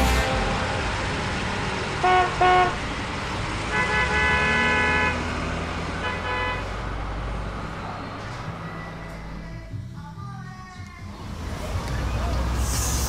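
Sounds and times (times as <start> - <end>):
car horn honking: 0.0 - 0.8, 2.0 - 2.8, 3.7 - 5.3, 6.0 - 6.7.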